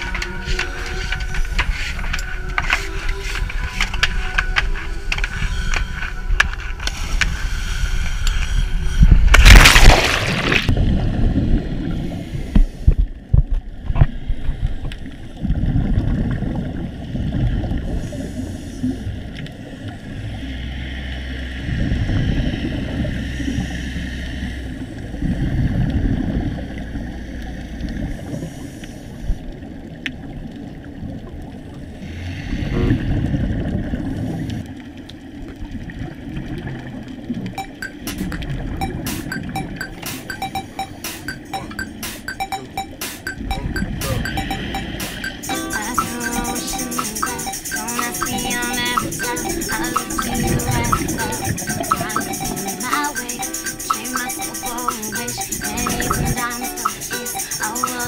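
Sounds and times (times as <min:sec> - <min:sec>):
loud splash into water: 0:09.3 - 0:10.8
muffled underwater rumble: 0:10.7 - 0:37.5
regulator bubbling: 0:36.7 - 0:58.0.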